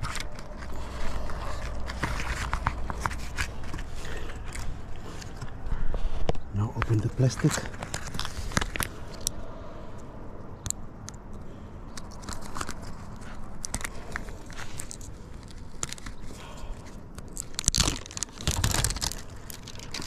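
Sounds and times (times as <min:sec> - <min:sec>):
plastic film crinkling and tearing: 0:00.0 - 0:05.4, 0:06.9 - 0:09.0, 0:12.1 - 0:20.0.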